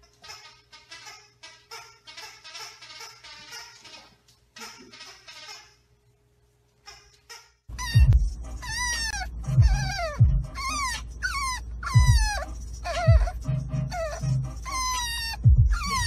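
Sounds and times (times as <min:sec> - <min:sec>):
puppy whining: 0:06.9 - 0:16.0.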